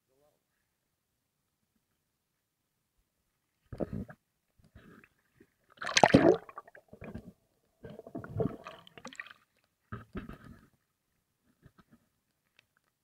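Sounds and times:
sea water splashing and gurgling: 5.8 - 7.2, 7.9 - 9.6.

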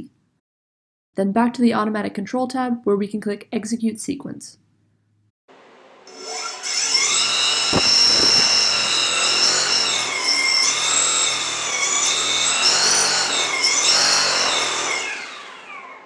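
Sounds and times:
drone motor whine: 6.1 - 16.0.

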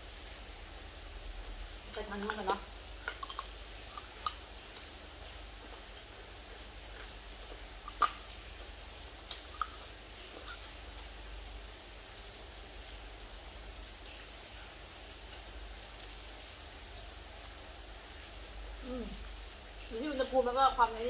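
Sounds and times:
rain hissing: 0.0 - 21.0
clicks and smacks of eating: 1.4 - 12.5, 16.8 - 18.0.

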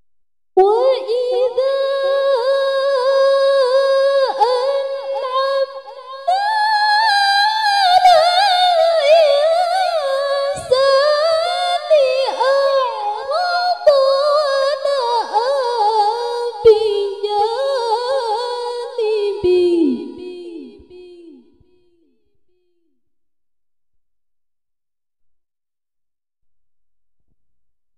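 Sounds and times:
woman reciting melodically: 0.6 - 21.8.

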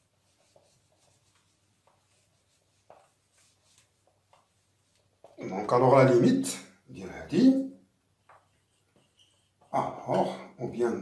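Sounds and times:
eraser wiping whiteboard: 0.0 - 5.4.

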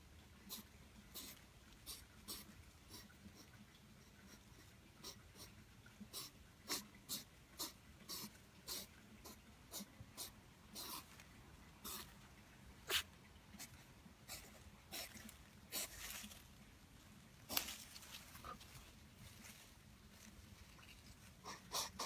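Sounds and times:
hedgehog huffing: 0.4 - 3.5, 6.1 - 11.2, 11.8 - 12.2, 12.8 - 16.3, 21.3 - 22.0.

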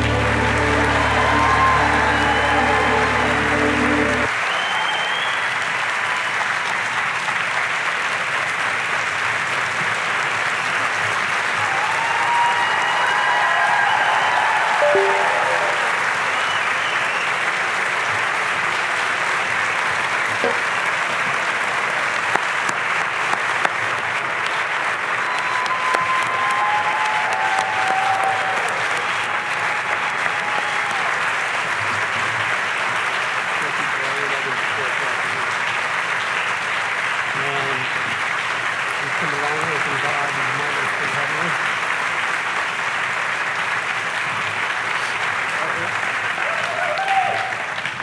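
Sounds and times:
large audience applauding: 0.0 - 48.0.

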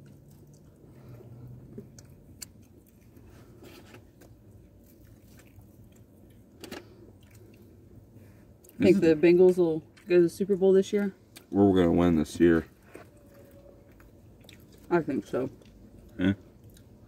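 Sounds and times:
chewing and biting food: 0.0 - 7.8, 12.8 - 14.9, 15.5 - 17.0
low steady hum: 0.0 - 17.0.

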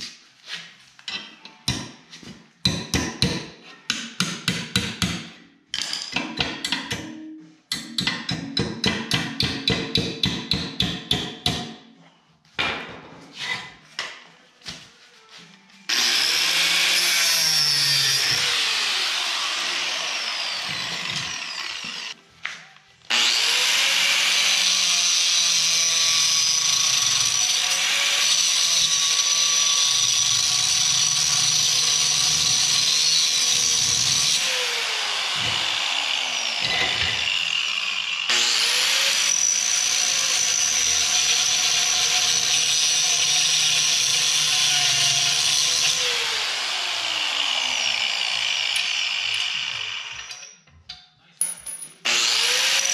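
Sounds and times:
angle grinder cutting steel: 15.9 - 22.2, 23.1 - 50.6, 52.0 - 52.9.

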